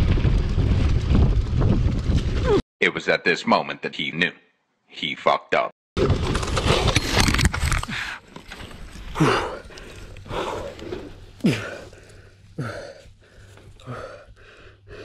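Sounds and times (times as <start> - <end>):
man groaning and gasping: 9.1 - 15.0.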